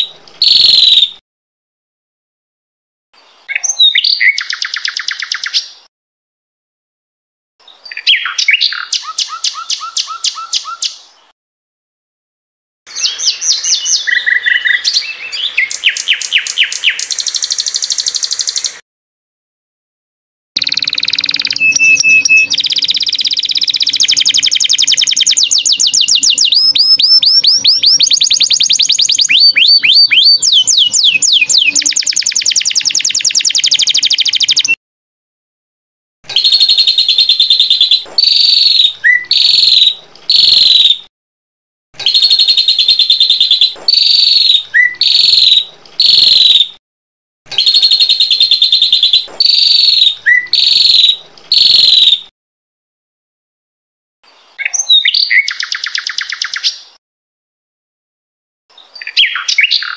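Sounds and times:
songbird singing: 0:00.0 - 0:01.2, 0:03.2 - 0:05.9, 0:07.6 - 0:11.3, 0:12.9 - 0:18.8, 0:20.6 - 0:34.8, 0:36.3 - 0:41.0, 0:42.0 - 0:46.8, 0:47.6 - 0:52.3, 0:54.3 - 0:57.0, 0:58.7 - 0:59.9.

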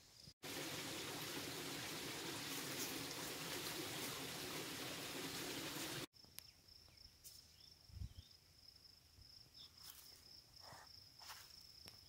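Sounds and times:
cricket trill: 0:06.2 - 0:12.0.

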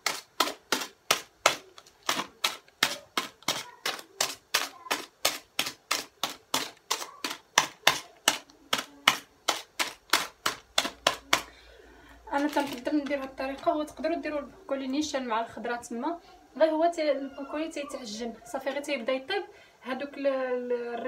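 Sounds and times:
toothpick popping through plastic bag: 0:00.0 - 0:11.5, 0:12.3 - 0:13.4.

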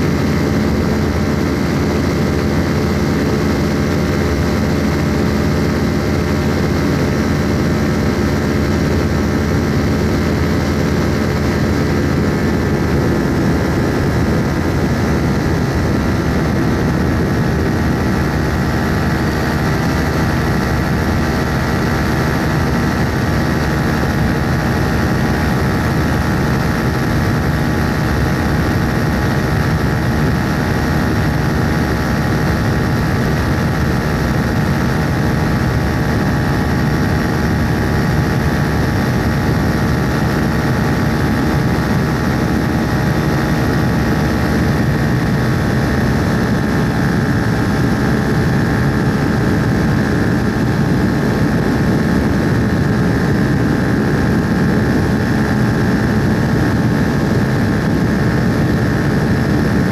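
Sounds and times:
propeller aircraft engine drone: 0:00.0 - 0:59.9.

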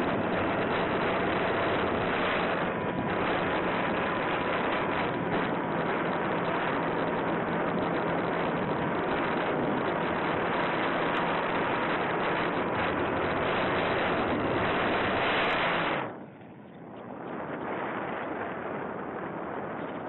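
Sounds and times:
faint motor and propeller tone: 0:00.0 - 0:20.0
wind rush on microphone: 0:00.0 - 0:20.0.

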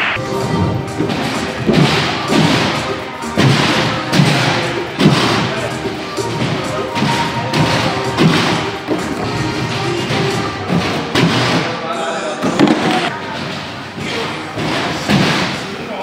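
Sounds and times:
dull thumps of gymnasts landing: 0:01.0 - 0:05.6, 0:06.2 - 0:11.7.

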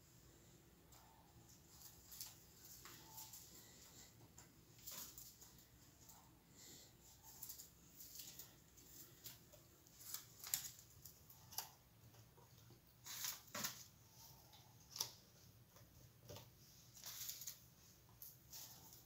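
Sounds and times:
paper and cardboard rustling: 0:16.2 - 0:19.0.

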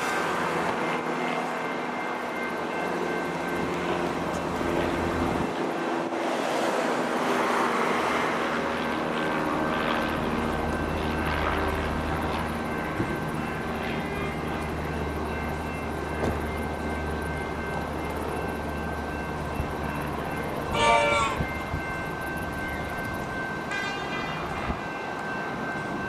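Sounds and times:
wheel and track noise: 0:00.0 - 0:26.0
train motor whine: 0:09.3 - 0:25.4.

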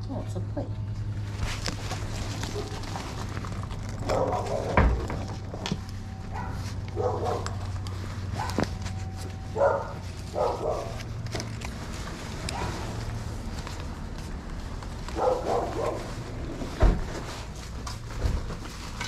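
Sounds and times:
dog barking: 0:04.0 - 0:04.8, 0:06.3 - 0:07.6, 0:08.4 - 0:08.6, 0:09.5 - 0:11.0, 0:12.5 - 0:12.9, 0:15.2 - 0:16.1.

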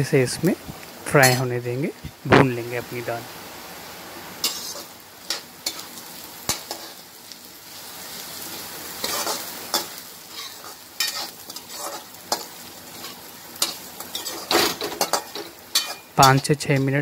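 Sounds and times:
lentils sizzling in hot oil: 0:00.0 - 0:17.0
metal ladle scraping pan: 0:04.4 - 0:05.9, 0:09.0 - 0:16.9.

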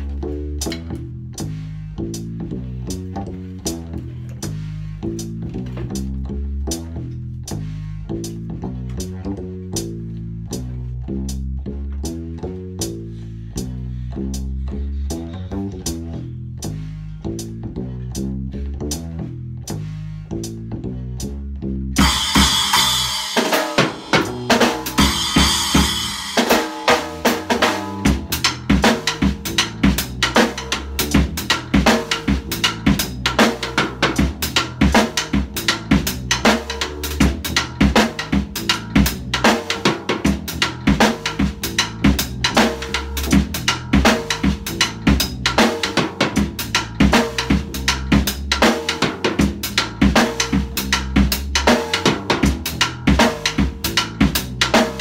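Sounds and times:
drum kit playing funk groove: 0:00.0 - 0:13.7, 0:22.0 - 0:55.0
looped bass line: 0:00.0 - 0:55.0
cymbal crashes: 0:22.0 - 0:27.3.

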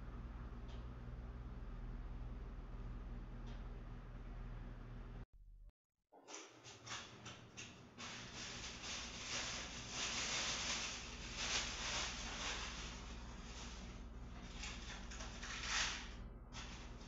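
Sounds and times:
plastic wrapping crinkling: 0:08.0 - 0:16.0.

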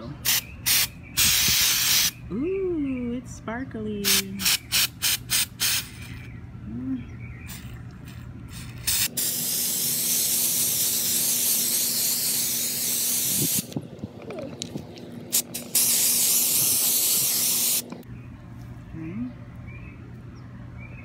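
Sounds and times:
aerosol spray can hissing: 0:00.3 - 0:02.1, 0:04.1 - 0:06.0, 0:08.6 - 0:13.8, 0:15.4 - 0:17.8.

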